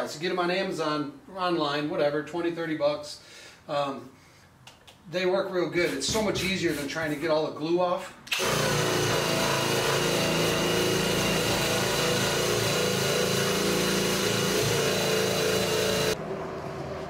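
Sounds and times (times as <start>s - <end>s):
drill motor whine with grinding: 8.3s - 16.2s.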